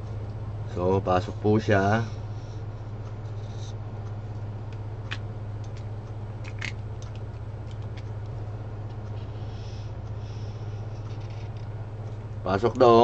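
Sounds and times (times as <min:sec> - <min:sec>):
steady low hum: 0:00.0 - 0:13.0
faint ticks and squeaks: 0:09.0 - 0:11.8.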